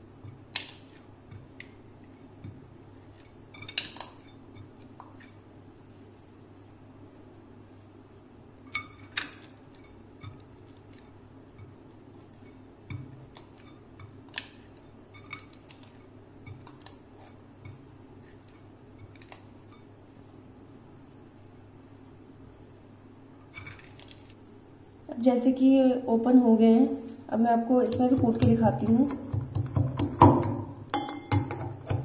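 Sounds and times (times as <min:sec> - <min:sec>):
steady low hum: 0:00.0 - 0:32.0
seeds cracking under metal bowl: 0:23.6 - 0:24.4.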